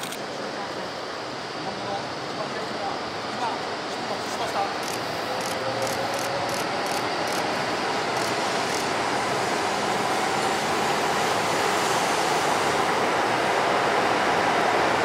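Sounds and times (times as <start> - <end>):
train rushing rumble: 2.2 - 15.0
sharp high clicks: 4.8 - 7.5, 8.1 - 8.9.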